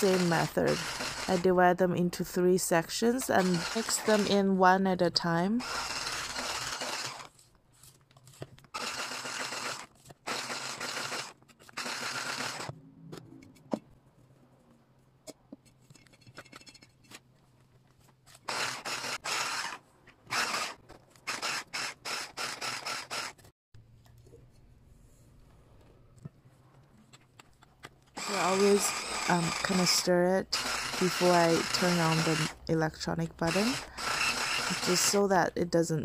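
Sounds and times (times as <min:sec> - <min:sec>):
electric hand mixer beating batter: 0:00.0 - 0:01.7, 0:03.2 - 0:04.5, 0:05.6 - 0:07.3, 0:08.8 - 0:12.7, 0:18.5 - 0:19.7, 0:28.2 - 0:35.3.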